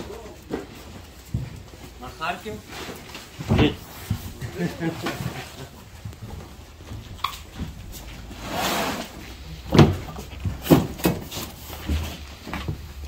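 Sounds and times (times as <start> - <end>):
cardboard boxes scraping and rustling: 7.9 - 12.4.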